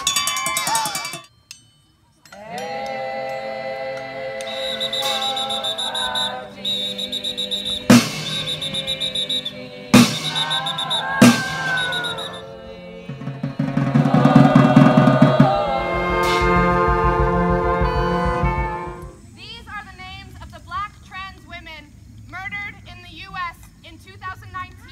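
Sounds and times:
sharp drum strikes: 7.6s - 12.4s, 13.0s - 19.2s
fast drum roll: 7.7s - 9.4s, 10.0s - 19.2s
live band music: 15.3s - 19.2s.

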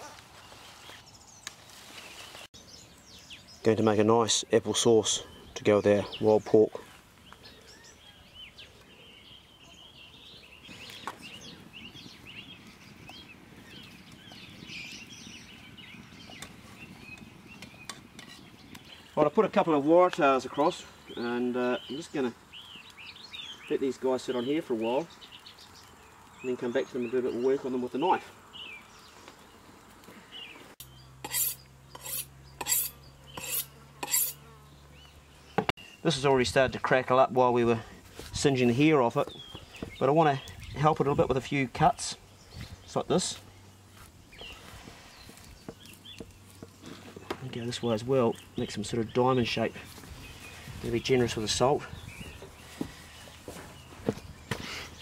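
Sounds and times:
birds chirping: 0.0s - 55.0s
knife scraping on sharpening steel: 31.2s - 34.4s.

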